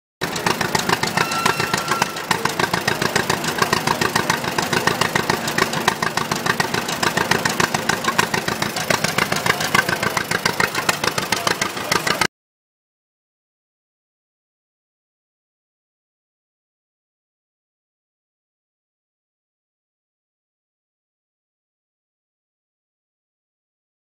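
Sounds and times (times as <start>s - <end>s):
tractor engine idling: 0.2s - 12.3s.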